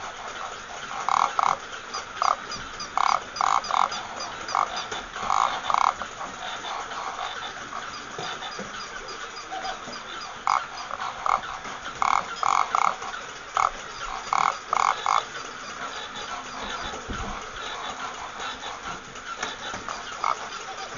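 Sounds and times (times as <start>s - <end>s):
toy motor whirring and clicking: 0.0s - 20.9s.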